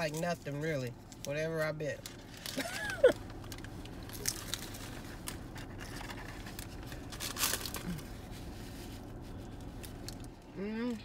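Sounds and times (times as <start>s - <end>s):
taco shell crunching: 0.0s - 11.0s
paper wrapper crinkling: 2.0s - 10.5s.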